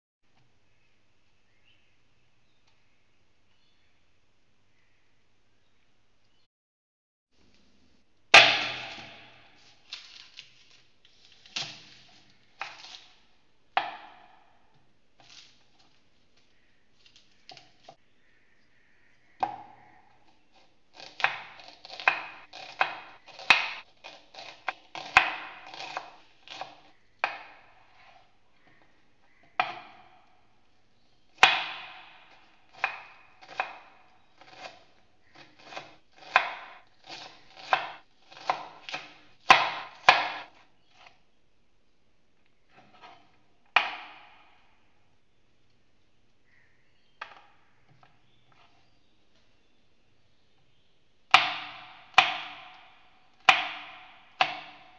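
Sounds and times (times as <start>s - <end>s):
knife chopping on wooden board: 20.9s - 30.2s, 31.4s - 41.2s, 51.3s - 54.9s.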